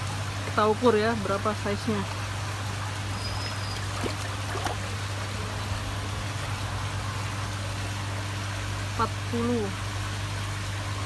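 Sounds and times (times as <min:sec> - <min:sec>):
low hum: 0:02.5 - 0:10.2
water sloshing in plastic bowl: 0:03.1 - 0:05.5.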